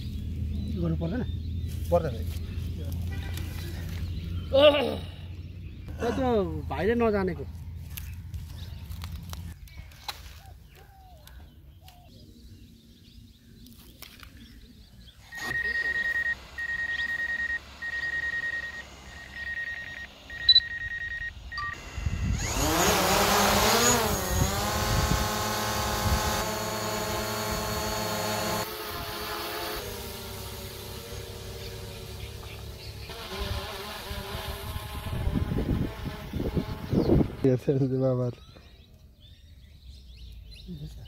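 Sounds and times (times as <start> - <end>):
drone motors whining: 15.1 - 37.5.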